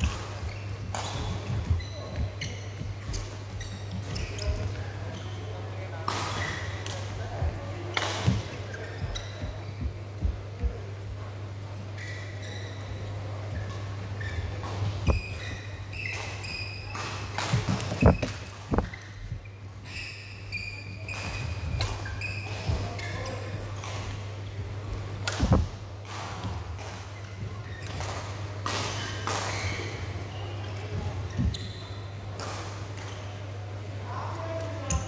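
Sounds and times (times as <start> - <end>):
shoe squeaks on court: 0.0 - 5.5, 8.2 - 9.8, 11.9 - 23.8, 27.6 - 28.1, 28.8 - 32.2
steady low hum: 0.0 - 35.0.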